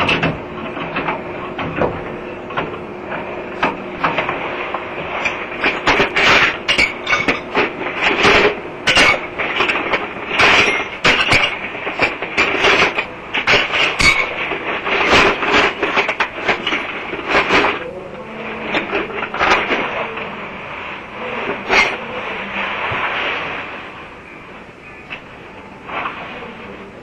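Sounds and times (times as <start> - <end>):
knocking banging and clattering: 0.0 - 18.0.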